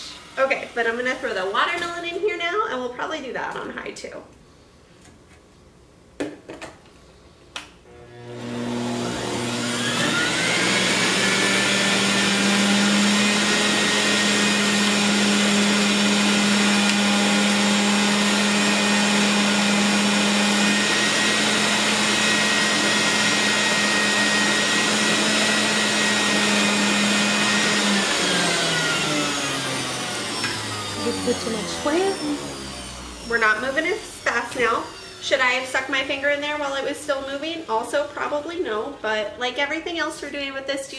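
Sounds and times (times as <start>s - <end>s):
juicer motor whining: 7.9s - 39.0s.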